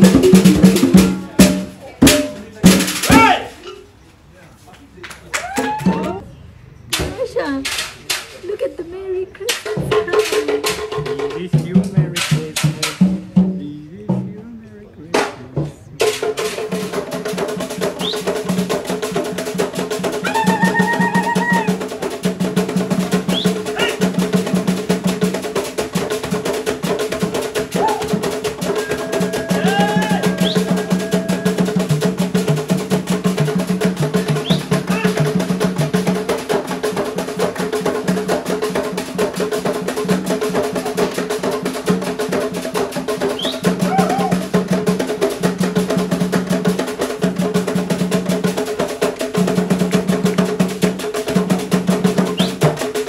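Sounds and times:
fast hand drumming: 0:00.0 - 0:03.3, 0:16.2 - 0:53.0
short high calls: 0:18.0 - 0:18.3, 0:20.2 - 0:21.8, 0:23.3 - 0:24.1, 0:27.7 - 0:31.7, 0:34.2 - 0:35.2, 0:43.3 - 0:44.4.

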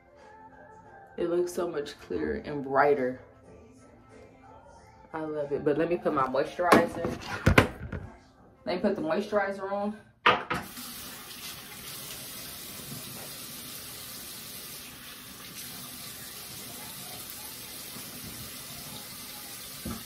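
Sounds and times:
sink tap running: 0:10.6 - 0:20.0.

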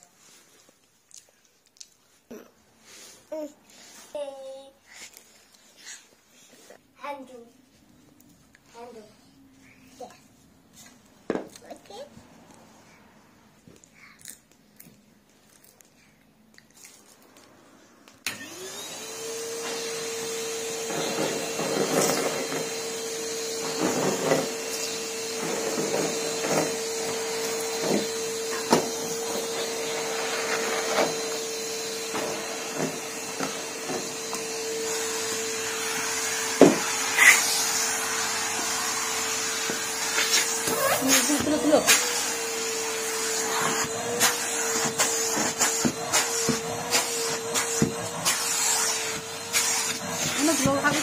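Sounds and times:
vacuum cleaner motor whining: 0:18.2 - 0:51.0.

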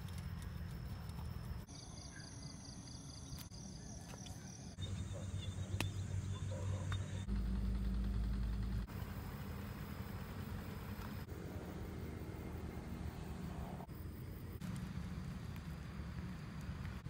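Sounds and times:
high insect chirping: 0:00.0 - 0:06.6
low steady rumble: 0:04.9 - 0:17.0.

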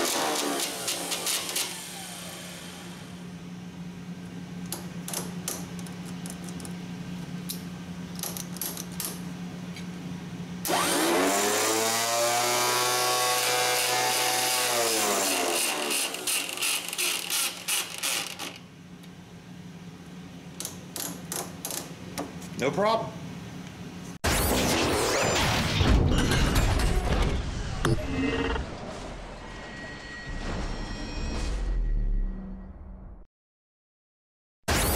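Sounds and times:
electric starter motor whining: 0:00.0 - 0:03.2, 0:10.6 - 0:13.1
low hum: 0:24.3 - 0:33.3.

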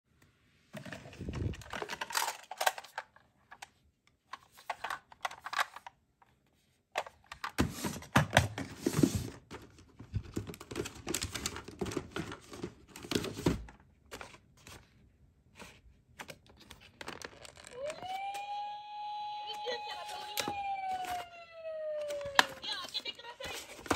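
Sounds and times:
plastic packaging rustling and crinkling: 0:00.7 - 0:03.2, 0:07.5 - 0:15.0, 0:15.6 - 0:18.3, 0:19.6 - 0:23.9
light plastic clatter: 0:00.7 - 0:06.0.

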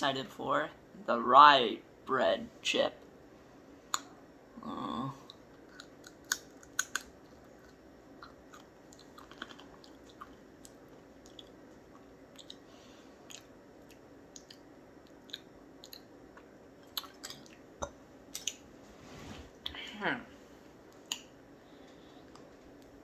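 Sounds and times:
person chewing crunchy chip: 0:05.6 - 0:12.6, 0:13.2 - 0:17.6.

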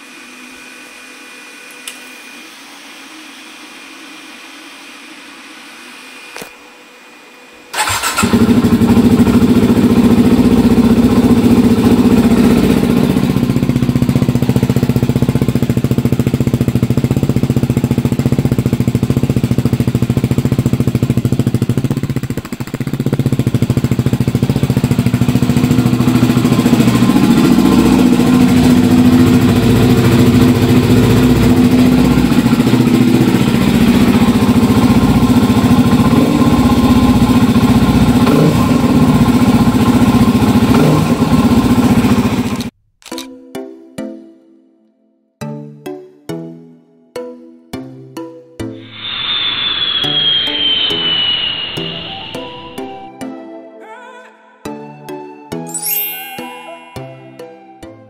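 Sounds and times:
motorcycle engine idling: 0:07.8 - 0:42.7.

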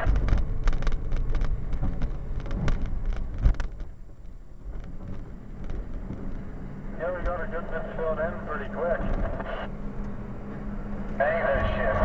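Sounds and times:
sharp rattles and knocks: 0:00.0 - 0:07.5
diesel engine rumbling: 0:00.0 - 0:12.0.

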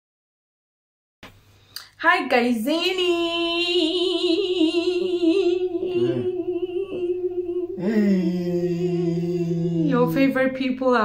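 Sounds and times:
woman singing a long note: 0:02.1 - 0:10.6
man singing a low note: 0:05.9 - 0:07.0, 0:07.7 - 0:10.2.

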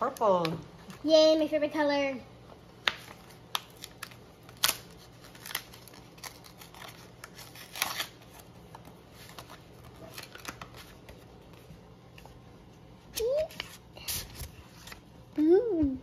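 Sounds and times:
paper envelope crackling and rustling: 0:02.8 - 0:12.4.

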